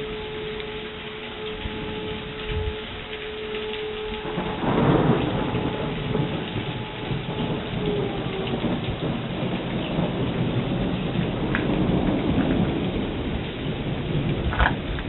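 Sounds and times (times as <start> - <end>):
rain falling on wet road: 0.0 - 15.0
thunder rumbling: 0.0 - 15.0.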